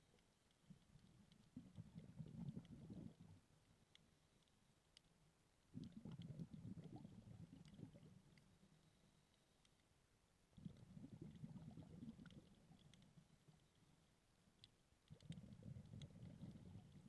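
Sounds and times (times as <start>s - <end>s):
faint sharp clicks: 0.0s - 17.0s
underwater regulator bubbles: 5.8s - 8.4s, 10.6s - 13.0s.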